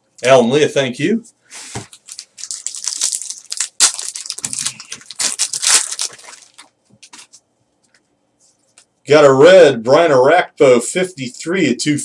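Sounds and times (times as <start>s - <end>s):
foil pack crinkling and tearing: 1.8s - 7.3s.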